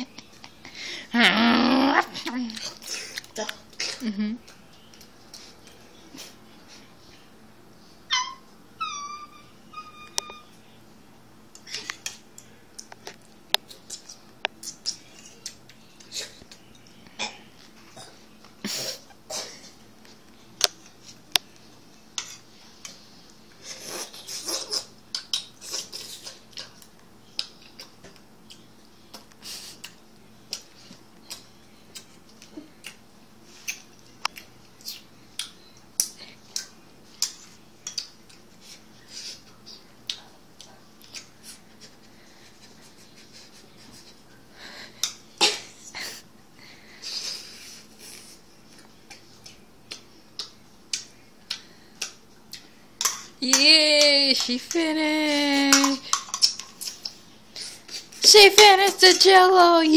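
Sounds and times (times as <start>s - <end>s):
small dog whining: 8.1s - 10.6s.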